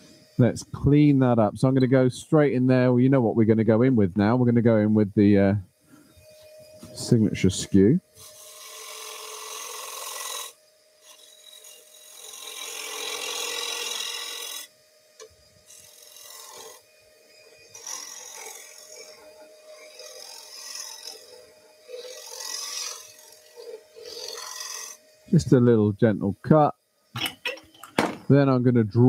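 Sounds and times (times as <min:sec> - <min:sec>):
lathe humming: 0:06.0 - 0:25.8
chisel scraping wood: 0:08.2 - 0:14.7, 0:15.7 - 0:16.8, 0:17.6 - 0:25.0.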